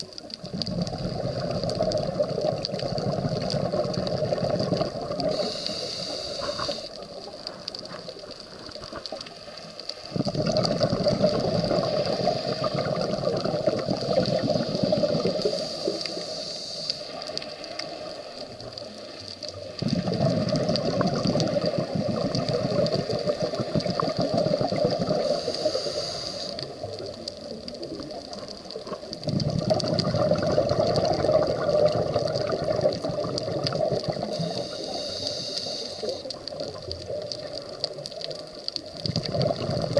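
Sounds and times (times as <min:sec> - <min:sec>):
exhaled bubbles rushing underwater: 0:00.0 - 0:39.9
regulator inhalation hiss: 0:05.2 - 0:07.2, 0:11.4 - 0:12.8, 0:14.3 - 0:18.4, 0:25.0 - 0:26.8, 0:34.1 - 0:36.4.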